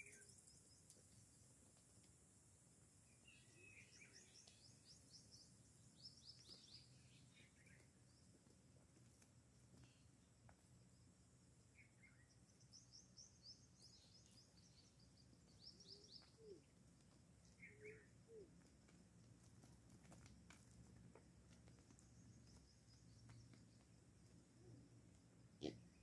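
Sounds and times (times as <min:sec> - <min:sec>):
faint birdsong chirps: 0:00.0 - 0:08.9, 0:09.6 - 0:19.3, 0:20.8 - 0:26.0
low steady background hum: 0:00.0 - 0:26.0
lower bird calls: 0:11.8 - 0:16.7, 0:17.5 - 0:18.5.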